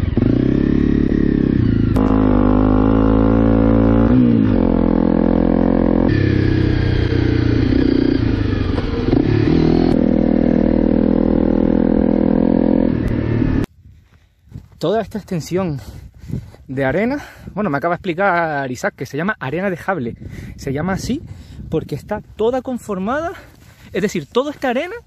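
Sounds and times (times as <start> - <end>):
motorcycle engine revving: 0.0 - 13.7.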